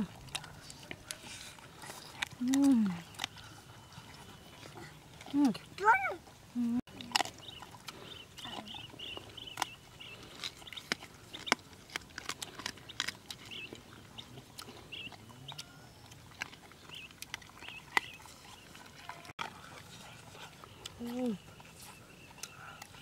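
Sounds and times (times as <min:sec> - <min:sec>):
dogs chewing and crunching: 0:00.0 - 0:23.0
small bird chirping: 0:07.3 - 0:11.6.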